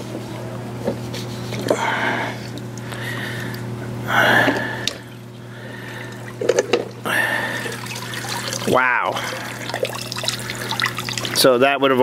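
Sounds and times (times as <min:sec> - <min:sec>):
water sloshing and splashing: 0:04.6 - 0:11.6.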